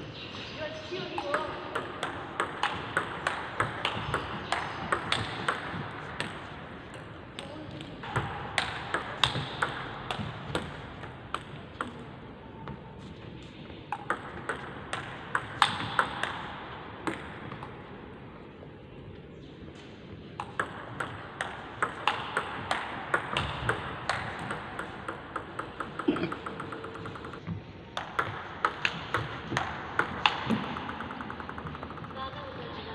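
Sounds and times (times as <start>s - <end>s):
table tennis ball clicking: 1.2s - 12.1s, 13.9s - 16.4s, 20.4s - 32.3s.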